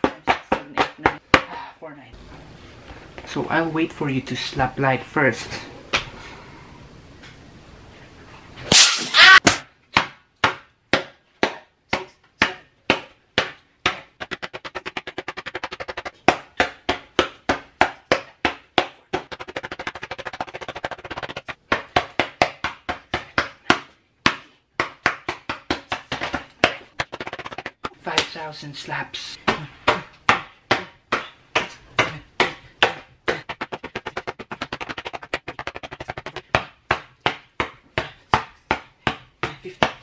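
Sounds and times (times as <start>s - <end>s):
hand slapping paper: 13.9s - 16.3s, 19.1s - 22.8s, 23.7s - 28.0s, 32.4s - 37.7s.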